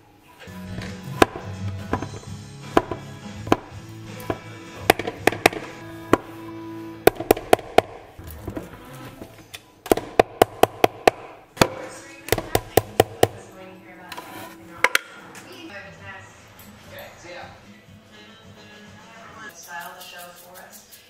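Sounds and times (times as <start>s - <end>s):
background music of held notes: 0.4s - 9.2s, 11.9s - 19.5s
spatula tapping plastic bowl: 1.2s - 6.3s.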